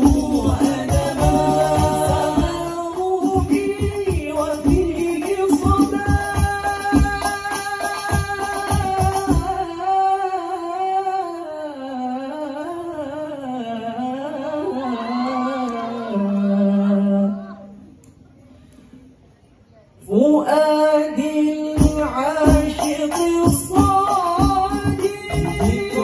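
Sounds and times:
frame drums: 0:00.0 - 0:09.7, 0:21.8 - 0:26.0
man singing: 0:00.0 - 0:15.2, 0:20.1 - 0:26.0.

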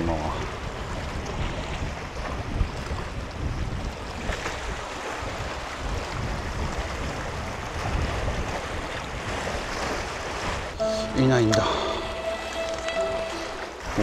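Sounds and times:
wind noise on microphone: 0:00.0 - 0:10.9
sea waves on boulder beach: 0:00.0 - 0:14.0.

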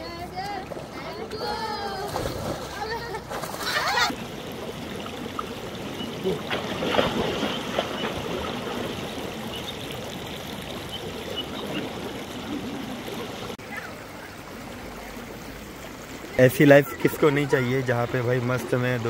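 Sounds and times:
river flowing: 0:00.0 - 0:19.0.

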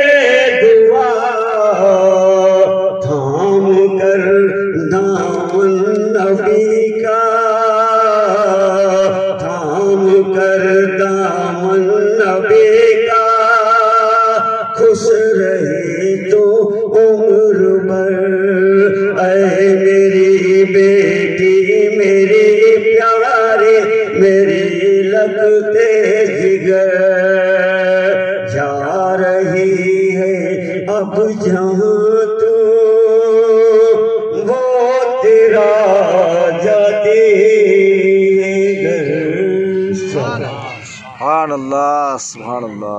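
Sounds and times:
man chanting through microphone: 0:00.0 - 0:42.9.

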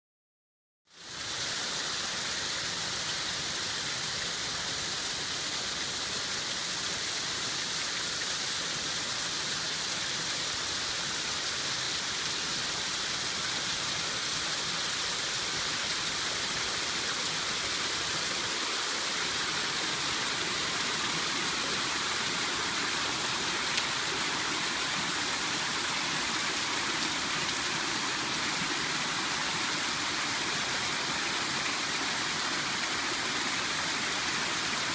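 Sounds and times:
water gushing and splashing: 0:13.7 - 0:34.9.

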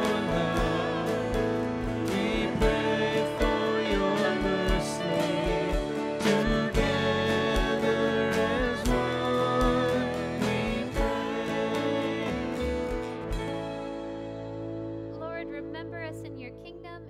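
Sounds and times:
voices singing: 0:00.0 - 0:13.3
steady drum beat: 0:00.0 - 0:13.8
guitar: 0:00.0 - 0:17.0.

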